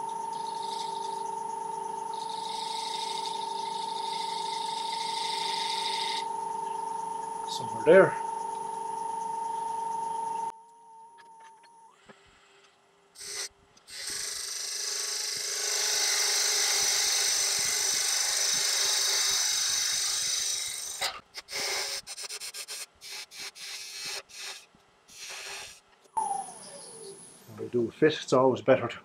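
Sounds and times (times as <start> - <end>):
turning tool cutting wood: 0.0 - 1.2, 2.1 - 6.4, 13.2 - 25.8
lathe motor hum: 0.0 - 10.5, 13.2 - 21.0.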